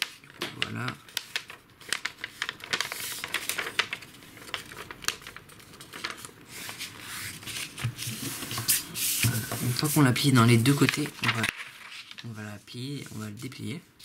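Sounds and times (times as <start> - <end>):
paper being folded and creased: 0.0 - 13.7.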